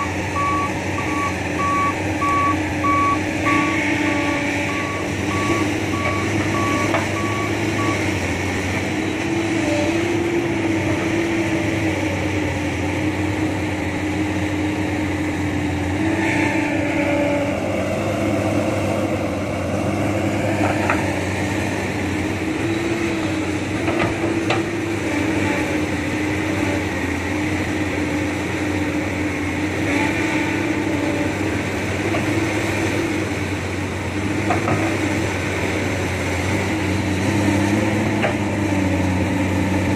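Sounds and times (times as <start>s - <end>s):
warning alarm beeping: 0.0s - 8.0s
excavator diesel engine running: 0.0s - 39.9s.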